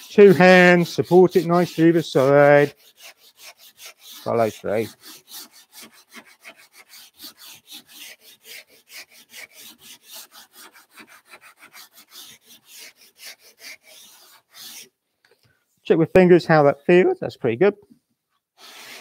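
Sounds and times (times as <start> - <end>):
sanding block rubbing wood: 0.0 - 14.9, 18.6 - 19.0.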